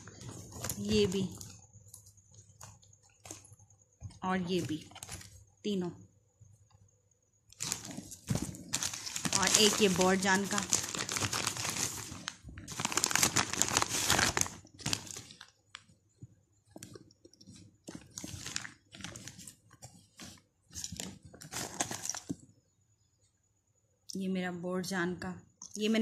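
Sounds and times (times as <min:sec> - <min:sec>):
plastic bag crinkling: 0:07.5 - 0:15.9, 0:16.8 - 0:22.4.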